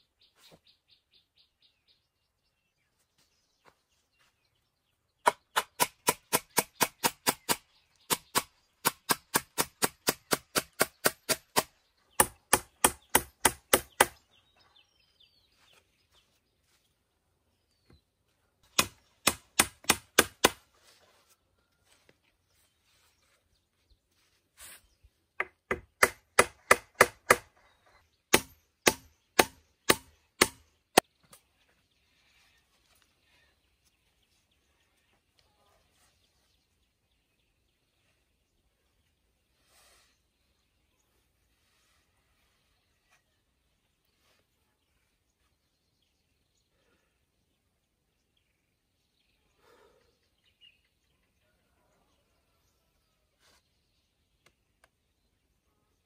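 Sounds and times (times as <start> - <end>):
blade chopping wood: 28.3 - 30.7.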